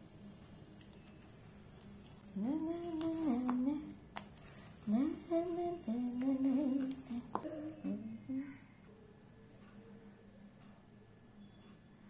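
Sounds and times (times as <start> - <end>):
woman humming: 2.3 - 4.0, 4.8 - 8.7.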